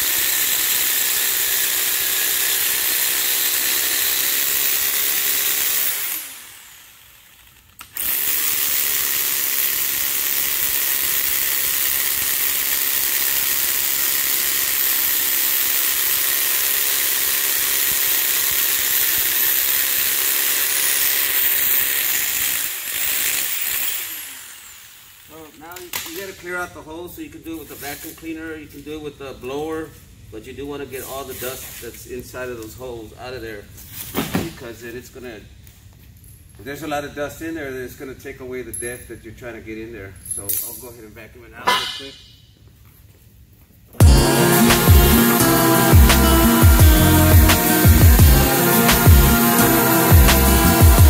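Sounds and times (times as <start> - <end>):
hammer drill boring into concrete: 0.0 - 26.2.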